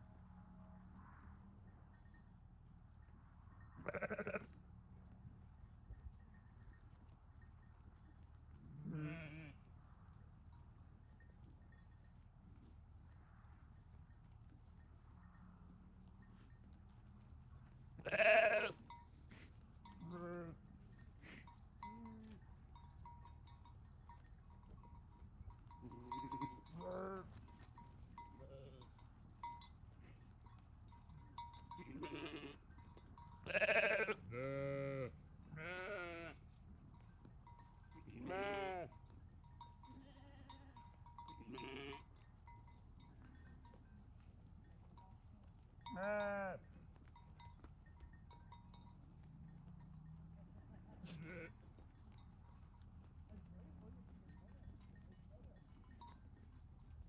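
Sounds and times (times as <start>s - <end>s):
sheep bleating: 3.8s - 4.6s, 8.8s - 9.6s, 18.0s - 18.8s, 20.0s - 20.6s, 25.8s - 27.3s, 31.8s - 32.6s, 33.4s - 36.4s, 38.0s - 39.0s, 41.4s - 42.1s, 45.9s - 46.6s, 51.0s - 51.6s.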